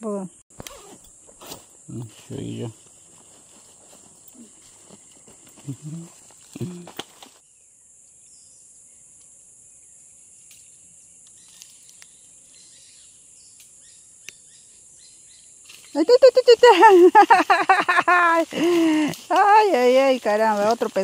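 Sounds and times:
insects droning: 0:00.0 - 0:21.0
person's voice: 0:05.6 - 0:07.0, 0:18.1 - 0:21.0.

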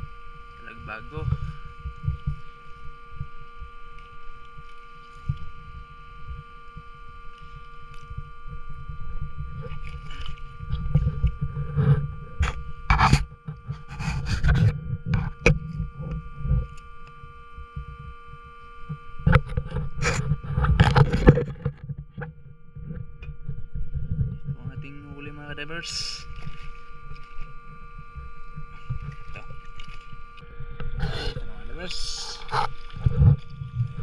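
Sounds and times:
low rumble of water: 0:00.0 - 0:34.0
steady thin whine: 0:00.0 - 0:34.0.

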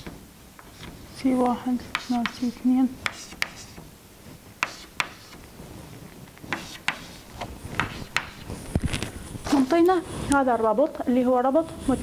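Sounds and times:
chalk tapping and scratching: 0:00.6 - 0:03.9, 0:04.6 - 0:05.6, 0:06.4 - 0:08.6.

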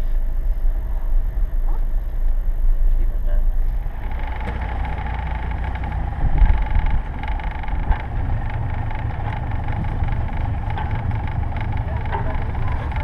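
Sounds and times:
wind buffeting microphone: 0:00.0 - 0:13.0
outboard motor running: 0:03.7 - 0:13.0.

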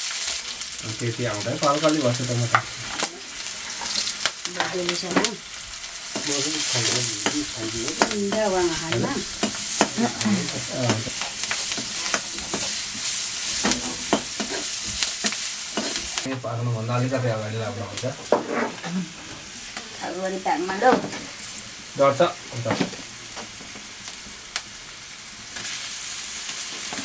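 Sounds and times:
meat sizzling in a pan: 0:00.0 - 0:27.0
utensil scraping a pan: 0:00.5 - 0:05.3, 0:06.1 - 0:16.3, 0:18.1 - 0:19.5.

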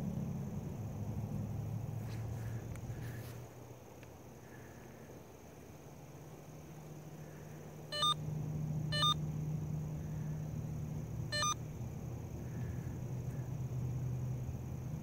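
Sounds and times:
low steady hum: 0:00.0 - 0:15.0
electronic beeps: 0:08.0 - 0:08.2, 0:09.0 - 0:09.2, 0:11.4 - 0:11.6.

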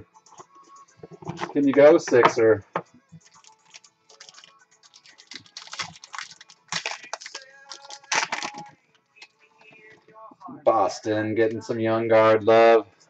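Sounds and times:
foil wrapper crinkling and tearing: 0:03.3 - 0:08.7.

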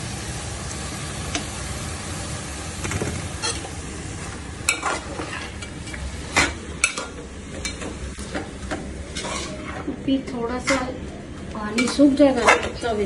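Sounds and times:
cabbage sizzling in hot oil: 0:00.0 - 0:08.3
metal spoon clinking against pan: 0:11.7 - 0:12.8.

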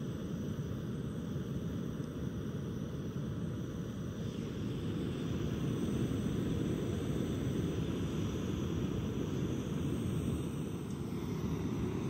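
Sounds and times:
camp stove burner rushing: 0:04.0 - 0:12.0.

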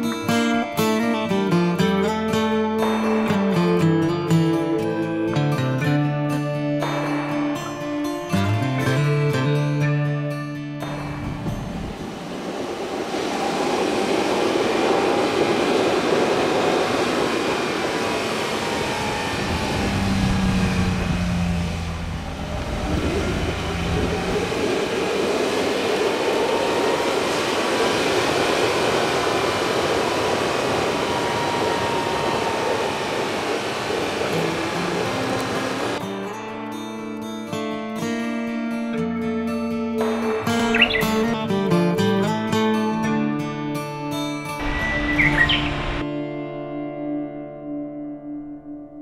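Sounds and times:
vehicle engine running: 0:16.4 - 0:27.8, 0:28.6 - 0:36.0.

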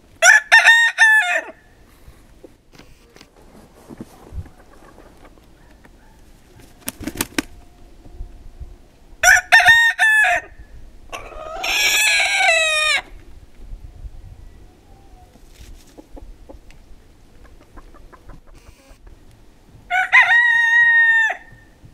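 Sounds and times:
rooster crowing: 0:00.2 - 0:01.6, 0:09.2 - 0:13.1, 0:19.9 - 0:21.7.

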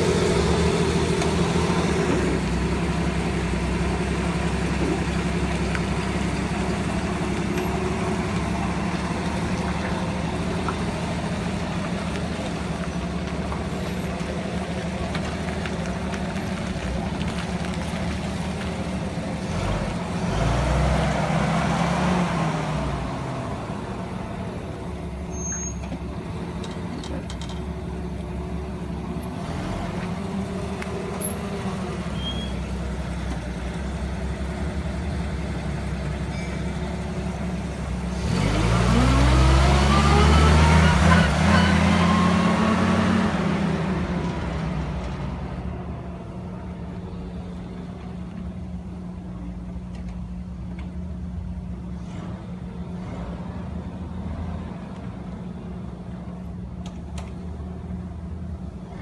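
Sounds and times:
tractor engine revving: 0:00.0 - 0:24.2, 0:36.9 - 0:45.3.

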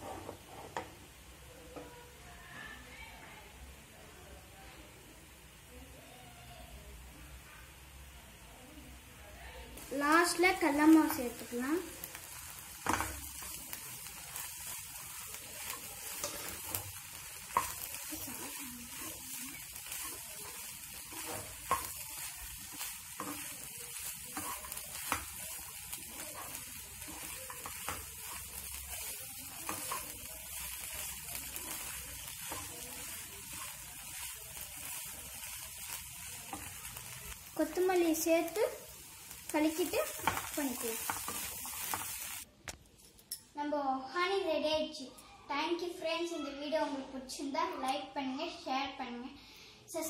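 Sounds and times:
spatula scraping and tapping pan: 0:00.0 - 0:01.0, 0:12.1 - 0:37.4, 0:39.3 - 0:42.4
food sizzling in a pan: 0:00.0 - 0:42.5.

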